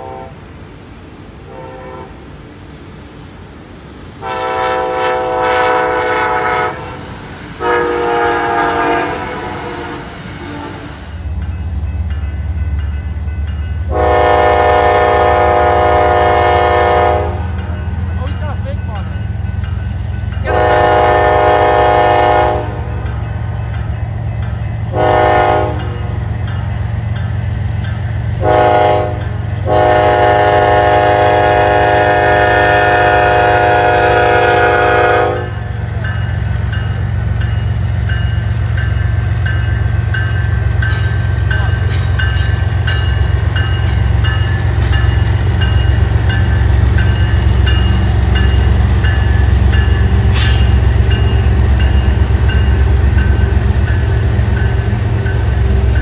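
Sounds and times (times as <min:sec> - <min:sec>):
locomotive air horn blasts: 0:00.0 - 0:00.4, 0:01.5 - 0:02.2, 0:04.2 - 0:07.0, 0:07.6 - 0:10.9, 0:13.9 - 0:17.5, 0:20.5 - 0:23.0, 0:24.9 - 0:26.0, 0:28.4 - 0:35.7
locomotive engines rumbling: 0:00.0 - 0:56.0
crossing bell dinging: 0:11.1 - 0:14.8, 0:17.2 - 0:30.0, 0:35.3 - 0:56.0
train wheels clicking on rails: 0:35.3 - 0:56.0.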